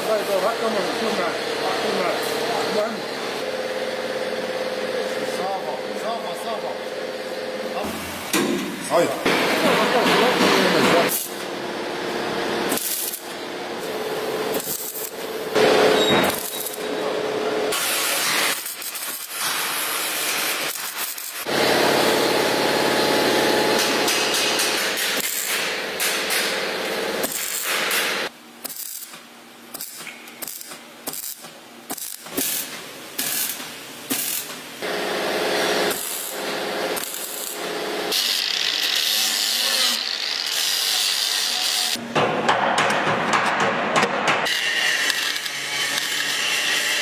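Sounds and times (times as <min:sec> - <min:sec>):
mig welder crackling: 0:09.3 - 0:42.0, 0:44.9 - 0:47.0
angle grinder whining: 0:37.0 - 0:42.0.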